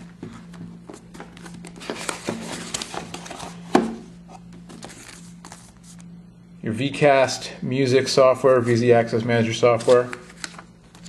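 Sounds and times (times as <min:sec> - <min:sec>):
low steady hum: 0:00.0 - 0:11.0
cardboard and paper rustling: 0:00.3 - 0:06.0, 0:09.7 - 0:11.0.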